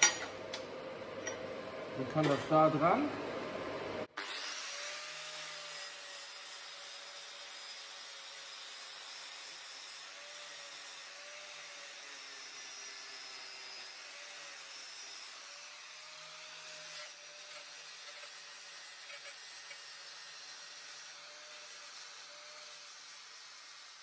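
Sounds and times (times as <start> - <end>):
angle grinder grinding metal: 4.2 - 24.0.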